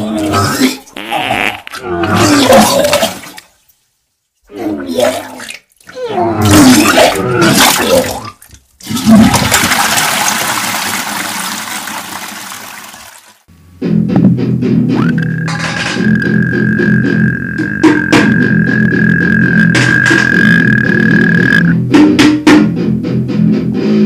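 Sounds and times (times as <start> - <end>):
person retching and gagging: 0.0 - 3.3, 4.8 - 9.7, 15.0 - 21.7
toilet flushing: 8.8 - 13.5.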